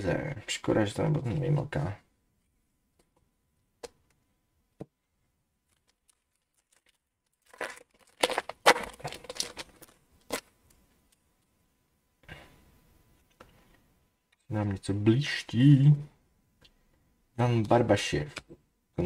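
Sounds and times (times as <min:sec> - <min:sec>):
foil wrapper tearing and crinkling: 0:05.7 - 0:10.5.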